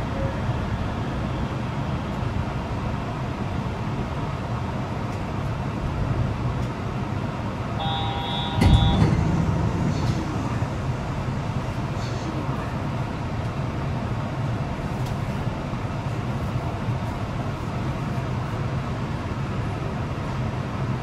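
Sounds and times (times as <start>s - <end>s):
train car rumble: 0.0s - 21.0s
short electronic chime: 7.8s - 9.4s
heavy thump: 8.3s - 11.9s.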